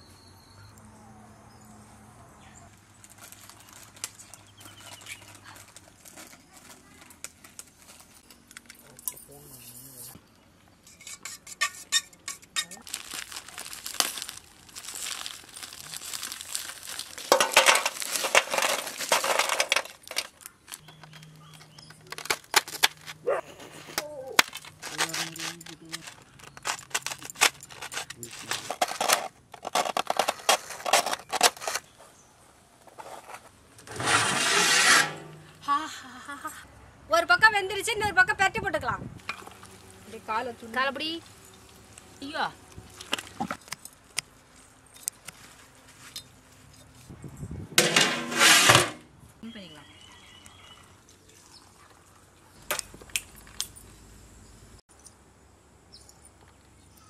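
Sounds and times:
steel tumblers clinking: 0:14.9 - 0:31.5, 0:39.2 - 0:39.8.

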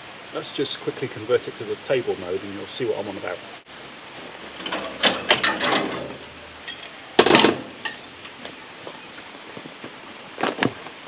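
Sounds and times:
steel parts clanking and rattling: 0:04.5 - 0:08.1.

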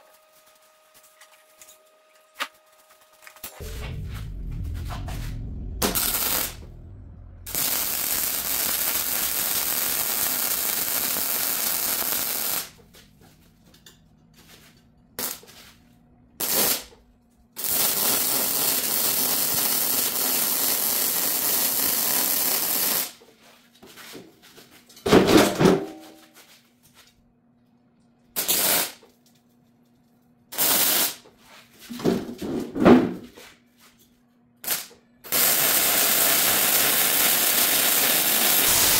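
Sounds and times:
welding arc hissing: 0:05.9 - 0:06.6, 0:07.5 - 0:12.8, 0:15.2 - 0:15.5, 0:16.4 - 0:16.9, 0:17.6 - 0:23.2, 0:28.4 - 0:29.0, 0:30.5 - 0:31.2, 0:34.6 - 0:38.9.

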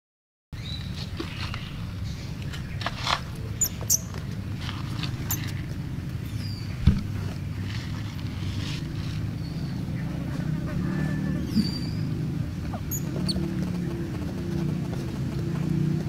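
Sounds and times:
baby monkey squeaks and clicks: 0:03.6 - 0:04.1, 0:05.2 - 0:05.6, 0:12.8 - 0:15.5.

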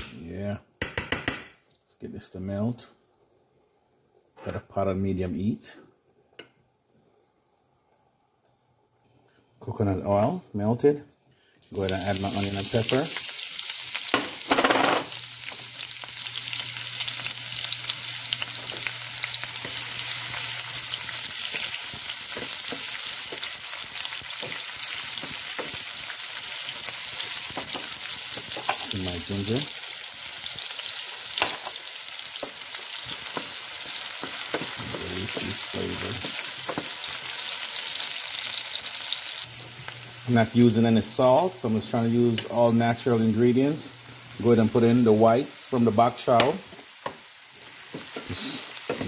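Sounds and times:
vegetables sizzling in frying pan: 0:11.6 - 0:49.0.

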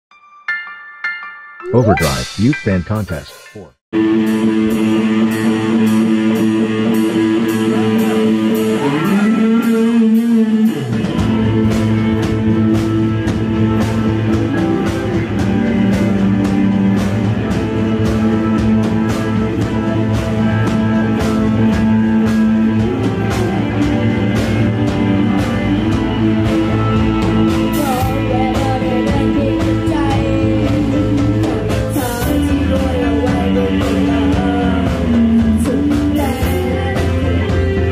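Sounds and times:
rock band playing: 0:01.6 - 0:37.9
boy singing: 0:01.7 - 0:02.3, 0:27.8 - 0:37.9.

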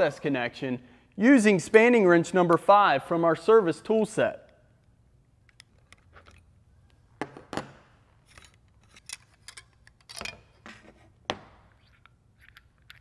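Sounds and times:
metal tools clinking on wood: 0:08.2 - 0:10.6.

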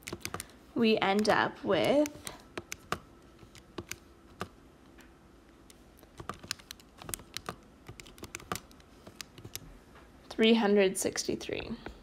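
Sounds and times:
calculator key presses: 0:00.0 - 0:00.5, 0:01.2 - 0:04.5, 0:06.2 - 0:09.7.

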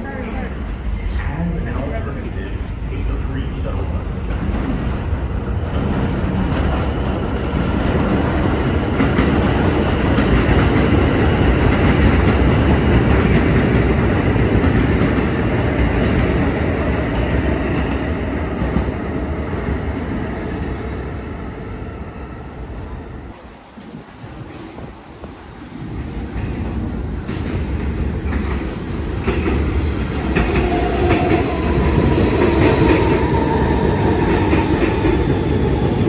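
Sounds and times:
subway train rumbling past: 0:00.0 - 0:36.0.

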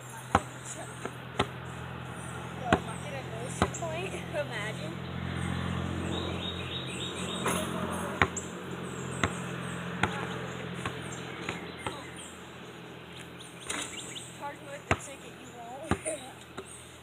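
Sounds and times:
basketball bouncing: 0:00.3 - 0:04.1, 0:07.4 - 0:12.2, 0:14.6 - 0:16.7.

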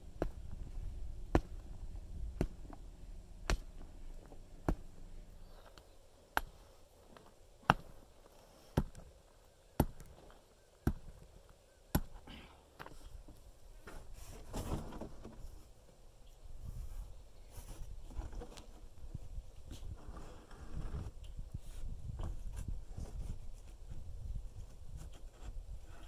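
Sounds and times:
sledgehammer pounding dirt: 0:00.1 - 0:02.8, 0:03.4 - 0:03.9, 0:04.6 - 0:05.0, 0:07.6 - 0:08.0, 0:08.8 - 0:09.1, 0:09.8 - 0:10.2, 0:10.8 - 0:11.3, 0:11.9 - 0:12.2.

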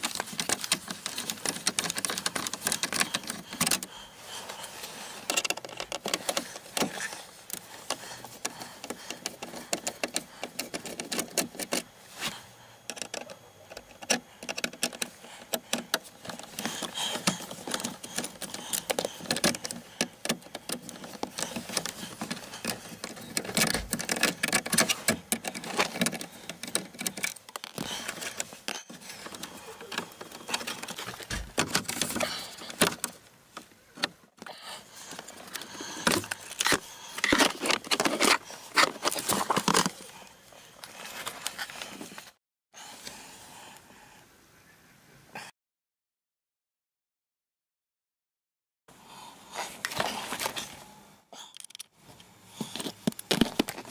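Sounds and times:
plastic trim clicking and rattling: 0:00.0 - 0:03.9, 0:05.2 - 0:11.9, 0:12.9 - 0:28.5, 0:29.2 - 0:33.2.

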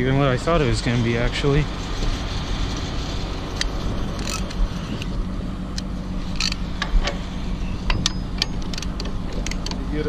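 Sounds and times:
diesel engine running: 0:00.0 - 0:10.0
sharp metal clinks: 0:07.8 - 0:09.7.

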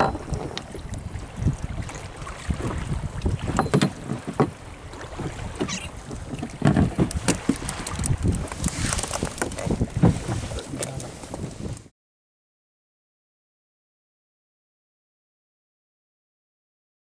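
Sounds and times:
knocks and clicks handling fish: 0:00.0 - 0:01.0, 0:02.6 - 0:11.9
water slapping against boat hull: 0:00.0 - 0:11.9
wind buffeting microphone: 0:00.0 - 0:11.9.

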